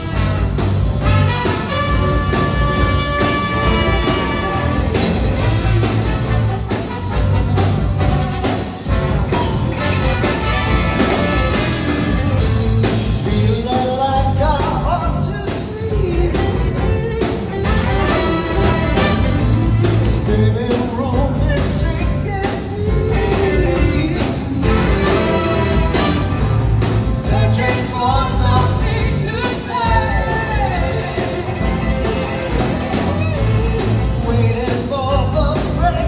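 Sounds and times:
live rock band with horns: 0.0 - 36.0.

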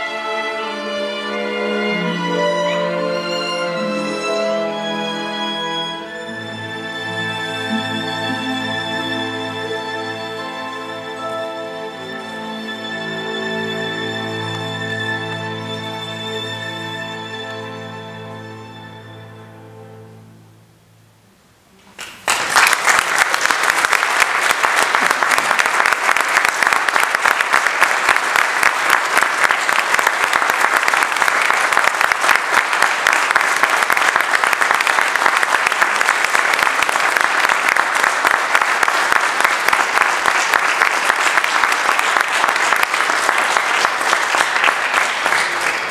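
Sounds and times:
audience applause: 21.9 - 45.9.

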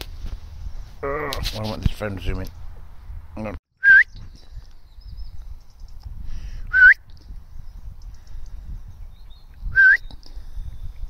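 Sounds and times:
loud whistle notes: 3.8 - 4.2, 6.7 - 7.0, 9.8 - 10.0.

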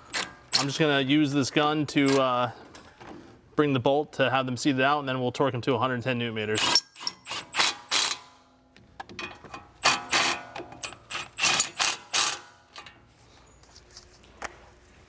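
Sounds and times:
impact wrench bursts: 6.6 - 8.3, 9.8 - 12.6.

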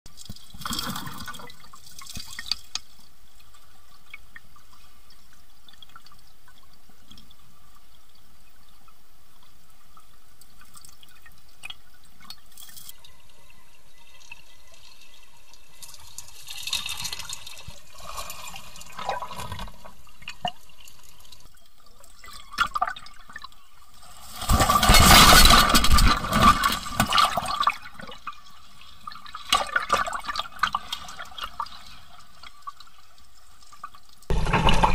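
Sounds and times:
stream water over rocks: 34.2 - 34.9.

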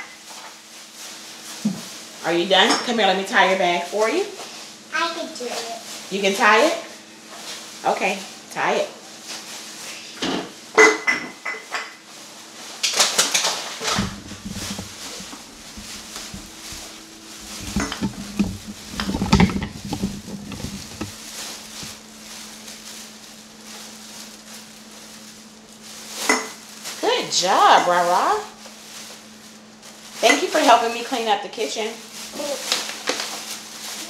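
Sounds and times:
faint steady hum: 13.8 - 32.8.

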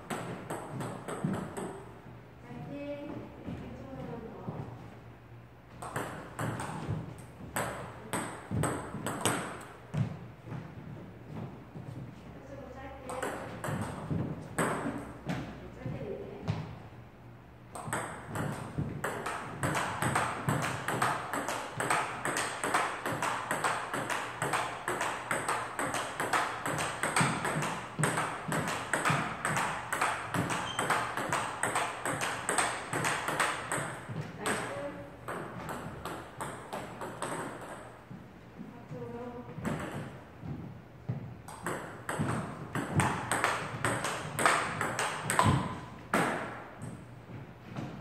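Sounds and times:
table tennis ball hits: 0.0 - 1.9, 5.8 - 10.2, 13.0 - 15.6, 17.7 - 38.0, 39.6 - 40.2, 41.5 - 47.0.

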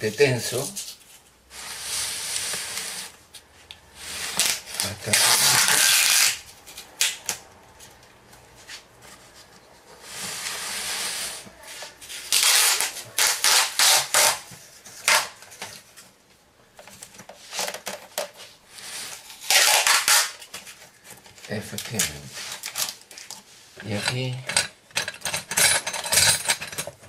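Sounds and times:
tape rasping off roll: 4.0 - 7.0, 9.9 - 15.7, 18.7 - 20.8
tape ripping from roll: 4.2 - 7.4, 12.1 - 15.7, 18.8 - 20.7.

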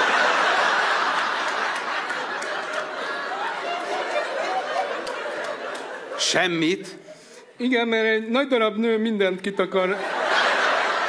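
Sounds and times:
audience laughing: 0.0 - 7.3, 9.8 - 11.0.

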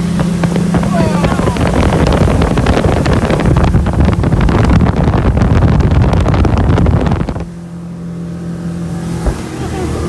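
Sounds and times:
wind buffeting microphone: 0.0 - 7.7
motorboat engine running: 0.0 - 10.0.

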